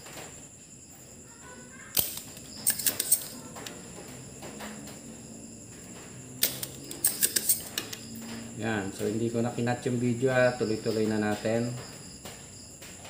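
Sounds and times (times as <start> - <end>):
desoldering pump snapping: 1.9 - 3.8, 6.4 - 8.1.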